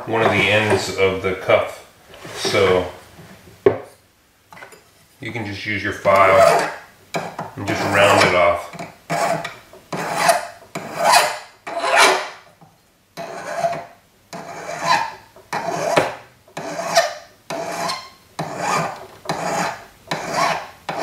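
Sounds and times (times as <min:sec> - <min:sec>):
file rasping on metal: 0:06.3 - 0:08.3, 0:09.1 - 0:12.4, 0:13.2 - 0:21.0.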